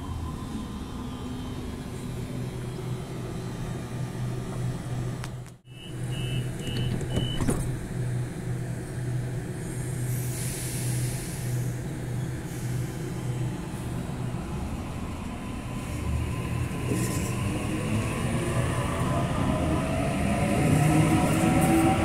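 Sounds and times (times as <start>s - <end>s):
train pulsing hum: 0.0s - 7.2s, 7.8s - 22.0s
hiss: 9.9s - 11.8s.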